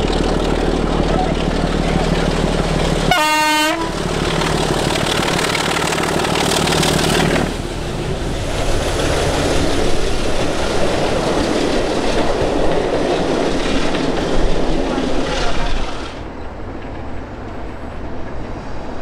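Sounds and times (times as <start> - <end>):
diesel locomotive engine running: 0.0 - 18.9
coaches rolling on rails: 0.0 - 19.0
locomotive horn toot: 3.1 - 4.0.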